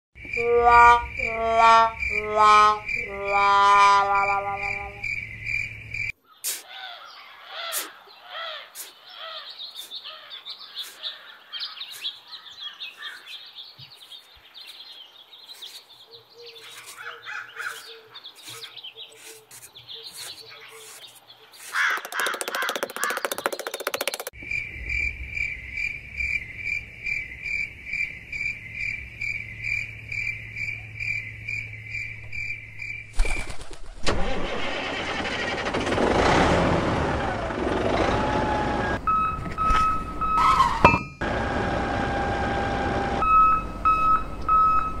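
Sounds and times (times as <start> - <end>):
birds chirping and twittering: 4.2 - 33.7.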